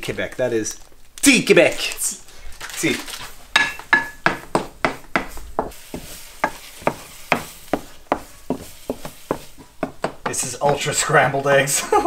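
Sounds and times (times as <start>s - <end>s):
spatula scraping frying pan: 4.0s - 11.5s.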